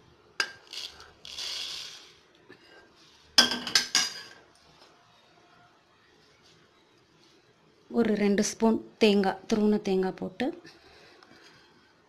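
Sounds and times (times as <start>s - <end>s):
seeds pouring into metal jar: 0.6s - 2.2s.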